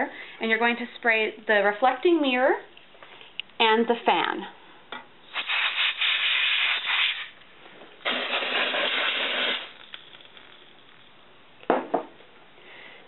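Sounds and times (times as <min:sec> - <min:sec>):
compressed air spray hissing: 0:05.3 - 0:07.4, 0:08.0 - 0:10.0.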